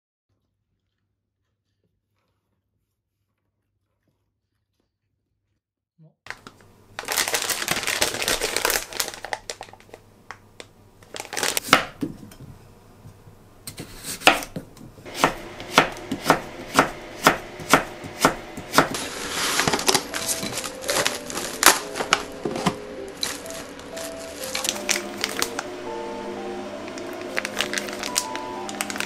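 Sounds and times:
knife cutting on wooden board: 13.7s - 19.0s
background music: 15.1s - 29.0s.

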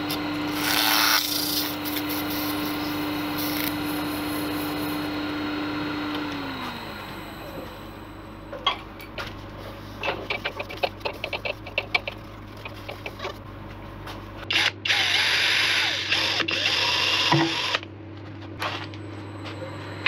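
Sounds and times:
cordless drill drilling wood: 0.1s - 7.7s, 14.5s - 17.8s.

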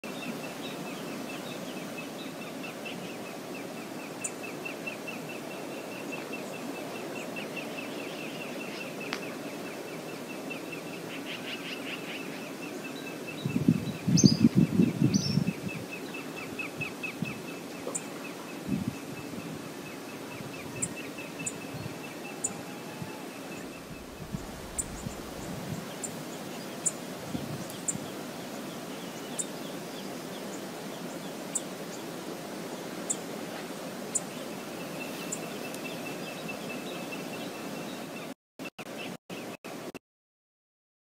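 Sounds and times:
river flowing: 0.0s - 13.4s, 15.8s - 38.3s
low rumble: 23.7s - 25.6s.

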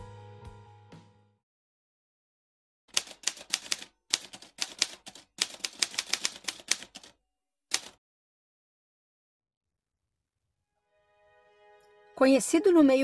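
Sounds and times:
typewriter keys clacking: 2.9s - 7.1s, 7.7s - 8.0s.

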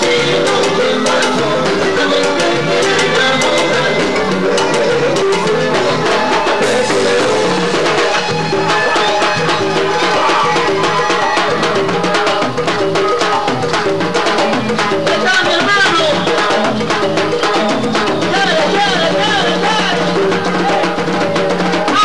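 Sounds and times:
drums and percussion: 0.0s - 22.0s
latin dance music: 0.0s - 22.0s.

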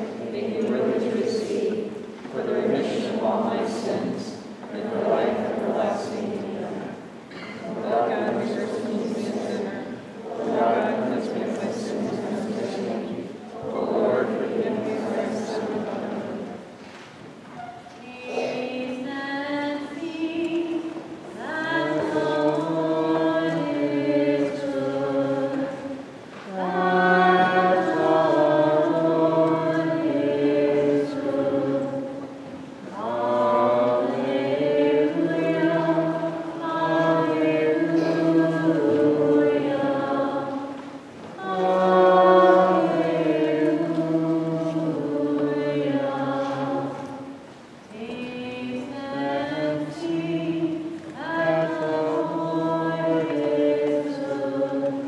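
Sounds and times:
group chanting a hymn: 0.0s - 16.9s, 17.5s - 55.0s.

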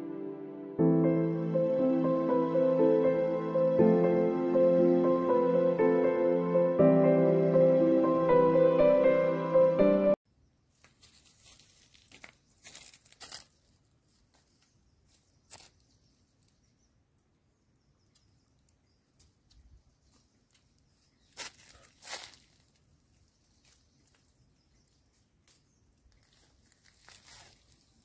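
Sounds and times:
background music: 0.0s - 10.2s
dry leaves and twigs rustling: 10.7s - 16.6s, 18.1s - 28.0s.

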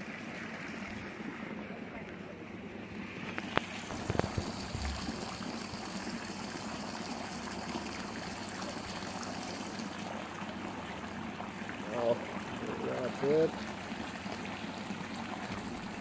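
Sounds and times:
water trickling and splashing: 3.3s - 16.0s.

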